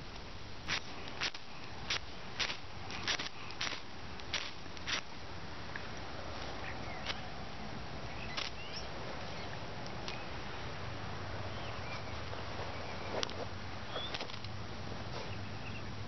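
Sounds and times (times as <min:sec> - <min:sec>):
fire crackles and pops: 0:00.0 - 0:05.2
steady background hiss: 0:00.0 - 0:16.0.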